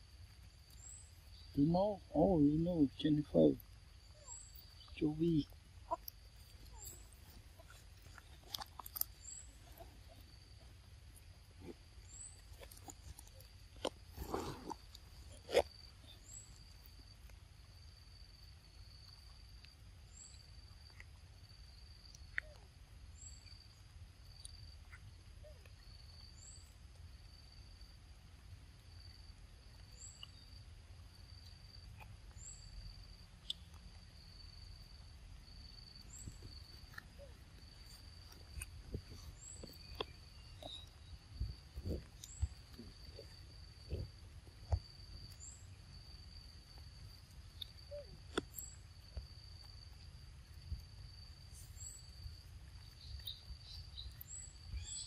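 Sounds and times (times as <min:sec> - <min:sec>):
high insect trill: 0:00.0 - 0:55.0
monkeys chewing clicks: 0:05.9 - 0:10.4.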